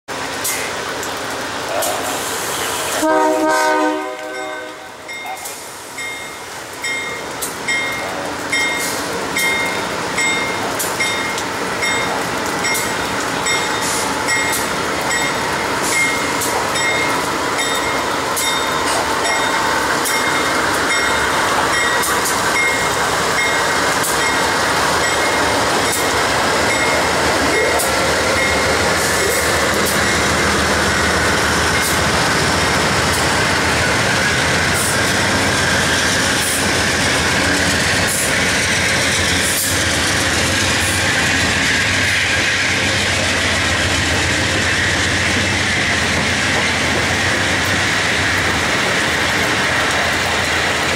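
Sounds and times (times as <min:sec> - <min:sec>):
diesel locomotive running: 0:00.1 - 0:50.9
rain hiss: 0:00.1 - 0:50.9
train wheels on rails: 0:00.1 - 0:50.9.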